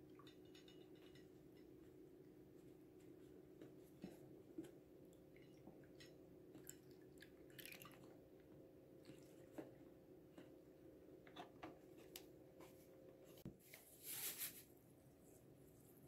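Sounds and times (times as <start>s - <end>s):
soft rustles: 12.6s - 15.9s.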